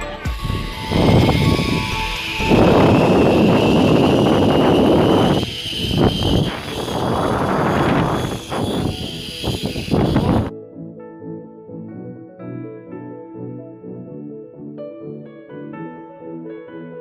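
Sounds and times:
wind noise on microphone: 0:00.0 - 0:10.5
zip line trolley whine: 0:00.0 - 0:10.5
soft piano music: 0:10.5 - 0:17.0.

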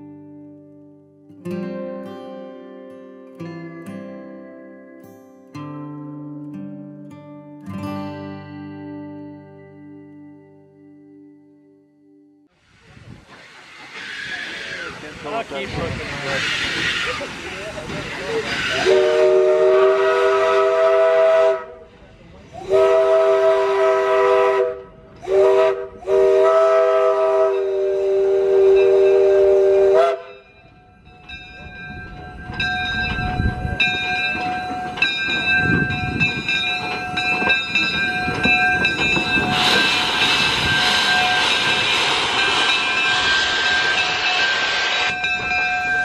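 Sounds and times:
loud steam hiss: 0:12.6 - 0:21.2, 0:37.6 - 0:46.0
steam locomotive whistle: 0:13.9 - 0:15.0, 0:16.2 - 0:17.4, 0:18.4 - 0:21.9, 0:22.5 - 0:30.6, 0:37.7 - 0:46.0
bell ringing strikes: 0:30.3 - 0:39.9, 0:42.4 - 0:46.0.

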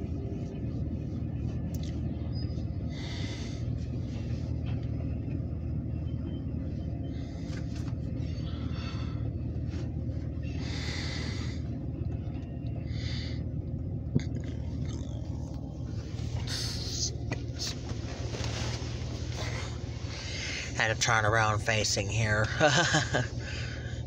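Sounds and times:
vehicle engine rumble: 0:00.0 - 0:24.0.

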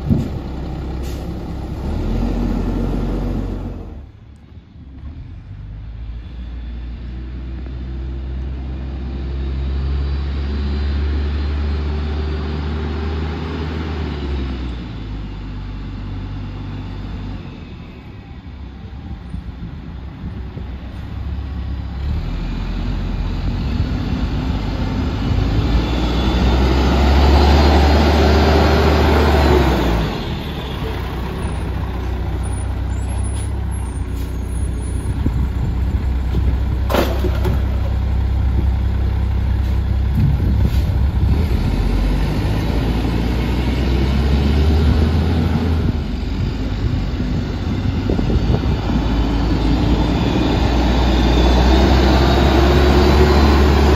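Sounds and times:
garbage truck engine running: 0:26.3 - 0:43.4.

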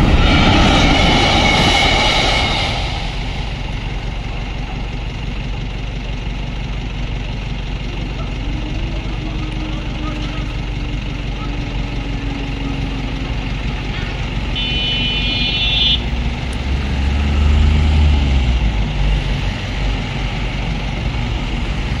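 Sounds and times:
car passing close: 0:00.0 - 0:05.0
road traffic moving: 0:00.0 - 0:22.0
steady high tone: 0:07.2 - 0:16.2.

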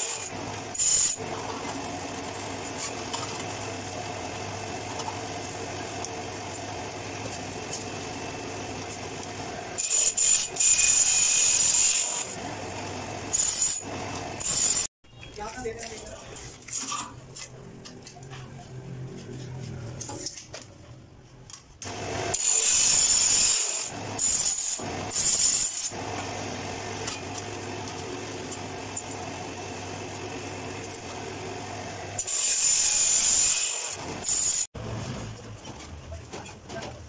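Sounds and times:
chop saw cutting metal pipe: 0:00.0 - 0:03.7, 0:08.8 - 0:12.4, 0:13.3 - 0:14.9, 0:21.8 - 0:29.4, 0:32.0 - 0:34.7.

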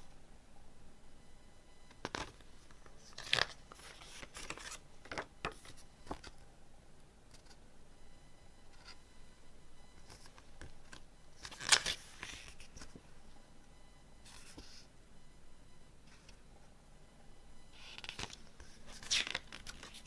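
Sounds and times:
paper pages turning: 0:03.0 - 0:06.3, 0:10.1 - 0:13.0, 0:17.8 - 0:20.0.

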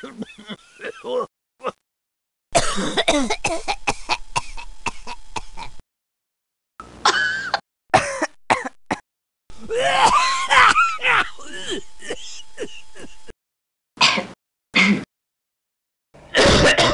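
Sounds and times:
person coughing: 0:02.6 - 0:05.7, 0:07.0 - 0:09.0, 0:09.7 - 0:13.3, 0:14.0 - 0:15.1, 0:16.3 - 0:16.9
throat clearing: 0:14.0 - 0:15.1.

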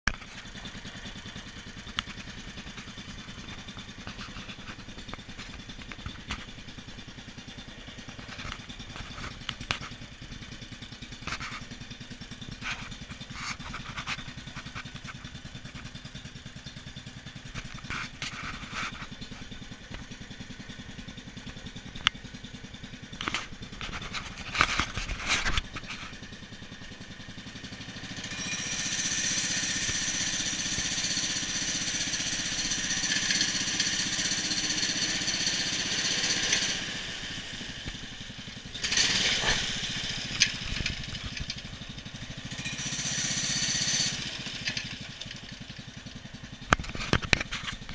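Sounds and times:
small engine running: 0:00.1 - 0:47.9.

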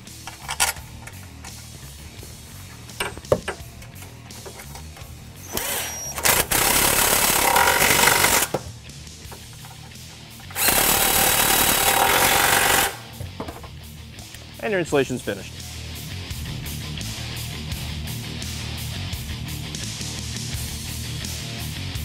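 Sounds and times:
background music: 0:00.0 - 0:22.0
impact wrench running: 0:03.0 - 0:08.7, 0:09.3 - 0:13.2.

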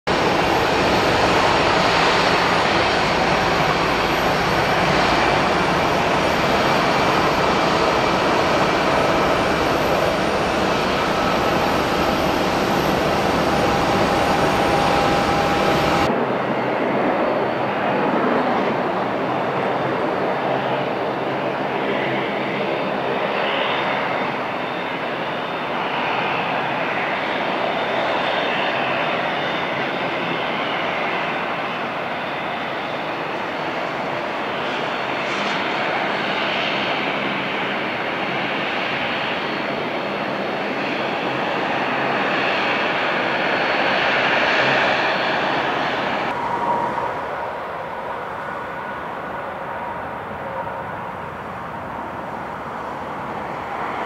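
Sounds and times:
thin engine whine: 0:00.1 - 0:16.1, 0:45.1 - 0:54.0
airliner engines running: 0:00.1 - 0:54.0.

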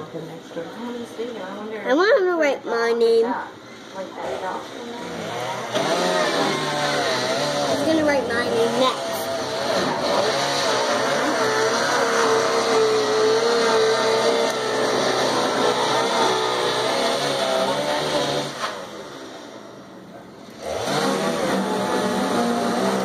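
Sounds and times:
chainsaw cutting: 0:04.3 - 0:19.4, 0:20.6 - 0:23.0.

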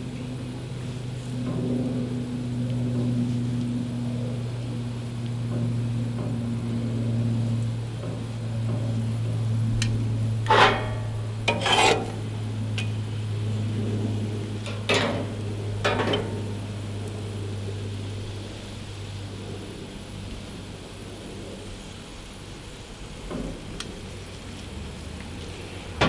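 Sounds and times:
steady low hum: 0:00.0 - 0:26.0
metallic scrapes of grill tongs: 0:10.4 - 0:13.0.

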